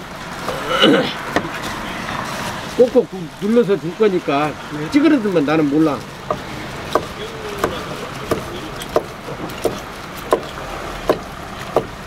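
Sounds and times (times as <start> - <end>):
cleaver chopping on wooden board: 6.2 - 12.0.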